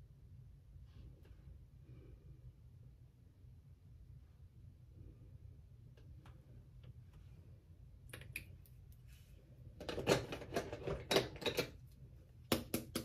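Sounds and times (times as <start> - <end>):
makeup products clicking and tapping: 8.1 - 8.6, 12.4 - 13.0.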